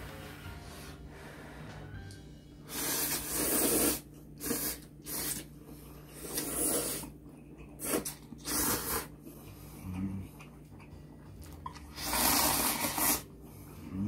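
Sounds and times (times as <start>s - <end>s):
people slurping noodles: 2.7s - 9.2s, 11.6s - 13.2s.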